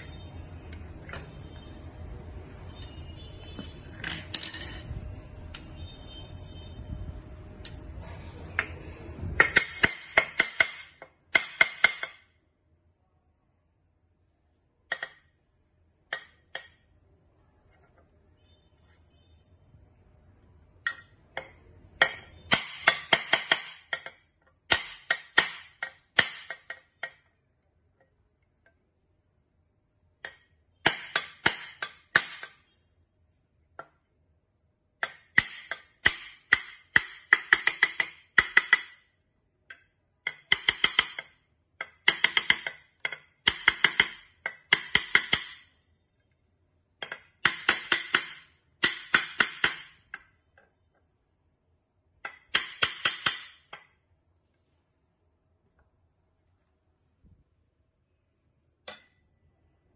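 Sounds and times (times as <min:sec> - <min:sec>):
hammer tapping on metal: 0:09.4 - 0:12.4, 0:20.8 - 0:27.4, 0:35.0 - 0:39.0, 0:39.7 - 0:45.7, 0:47.0 - 0:50.3, 0:52.2 - 0:54.0.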